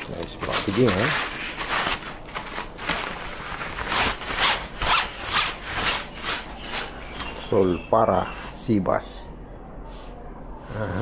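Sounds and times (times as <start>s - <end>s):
cloth bag scraping cardboard box: 3.3s - 6.9s.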